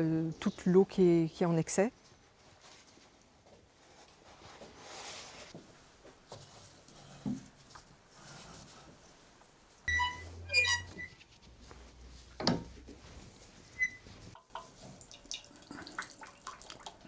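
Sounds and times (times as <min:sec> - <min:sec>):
screw press squeaking: 0:09.9 - 0:11.1.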